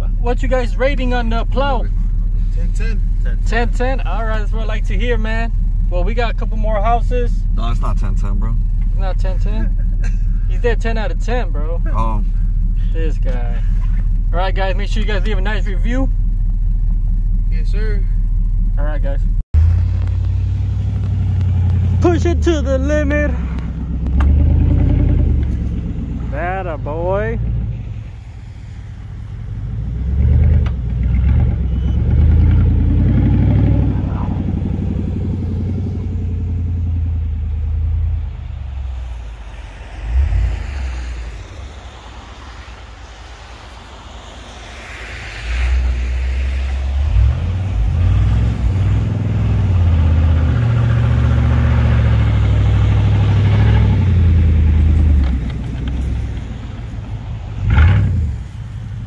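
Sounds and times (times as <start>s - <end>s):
truck engine revving: 18.5s - 28.2s, 29.1s - 58.8s.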